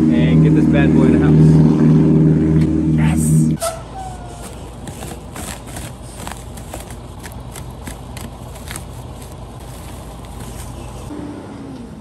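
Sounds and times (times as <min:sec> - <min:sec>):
low steady rumble: 0:00.0 - 0:11.1
plastic wrap crinkling: 0:04.3 - 0:11.1.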